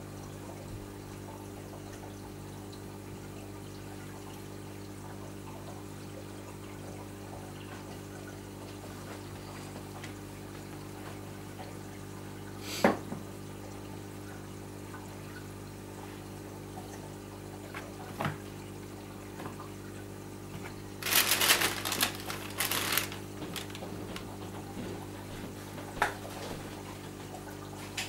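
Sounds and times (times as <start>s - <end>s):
aquarium pumps humming: 0.0s - 28.0s
rapid clicks and clatter: 21.0s - 23.9s.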